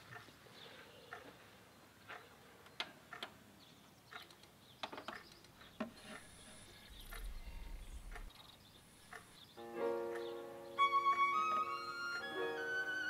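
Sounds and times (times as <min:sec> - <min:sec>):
low electrical hum: 0:06.0 - 0:09.2.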